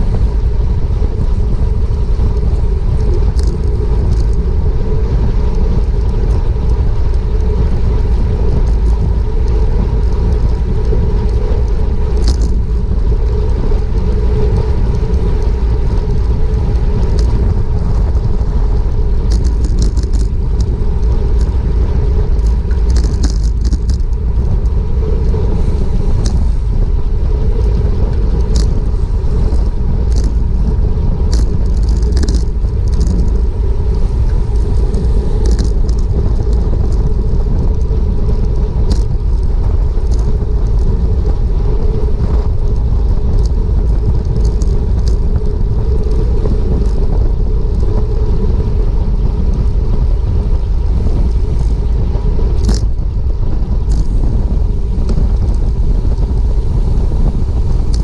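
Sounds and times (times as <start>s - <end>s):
wind rushing over microphone: 0.0s - 58.0s
small clicks: 2.4s - 4.4s, 8.6s - 12.6s, 17.0s - 17.9s, 19.3s - 21.6s, 22.4s - 24.2s, 28.4s - 28.8s, 29.5s - 30.4s, 31.3s - 33.4s, 34.0s - 47.2s, 52.6s - 53.0s.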